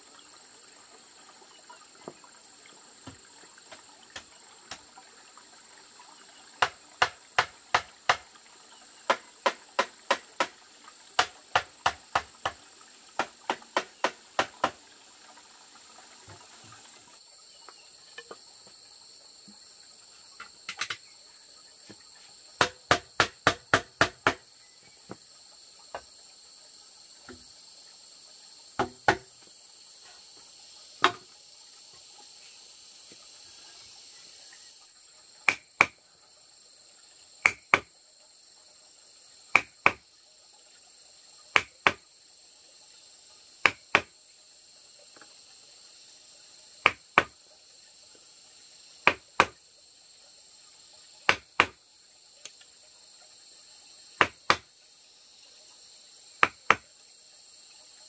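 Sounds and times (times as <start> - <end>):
insects chirring: 0.0 - 58.0
mallet striking chisel: 49.1 - 49.5.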